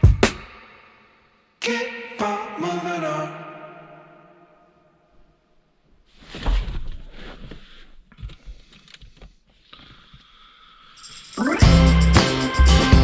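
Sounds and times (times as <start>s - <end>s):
knocks and rustles of handling: 6.0s - 9.6s.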